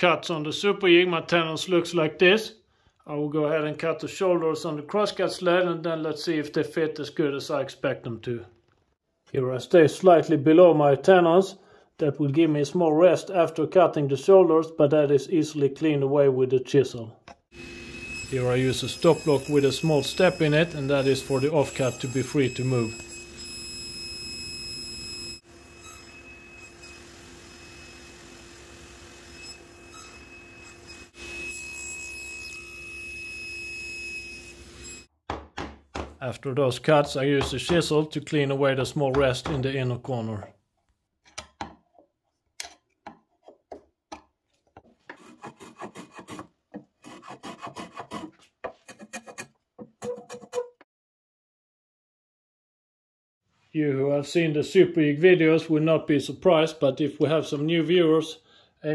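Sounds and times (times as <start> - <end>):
table saw running: 17.6 - 35.1
chisel paring wood: 35.3 - 36.2, 37.4 - 37.9
hand plane scraping strokes: 44.8 - 50.8.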